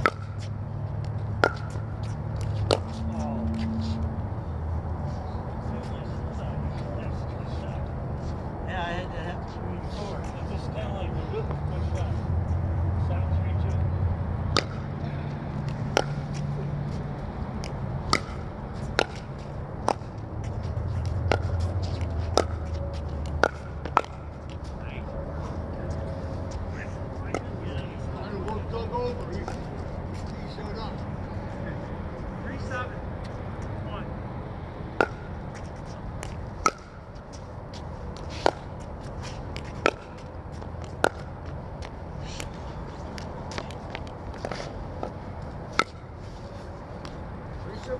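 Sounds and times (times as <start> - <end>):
steady low hum: 0.0 - 47.9
paddles hitting plastic ball: 17.6 - 20.1, 21.1 - 24.6, 36.2 - 37.0.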